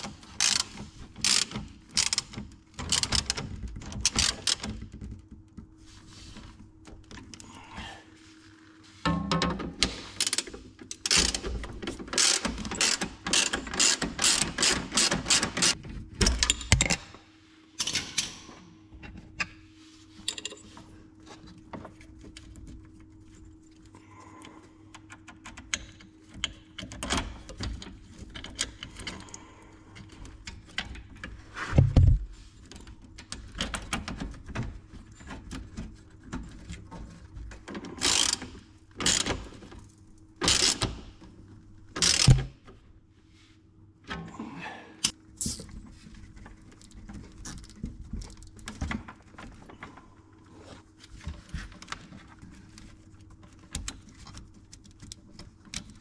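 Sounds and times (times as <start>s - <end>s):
ratchet clicking: 12.2s - 15.8s, 38.0s - 38.4s, 40.4s - 40.8s, 42.0s - 42.4s.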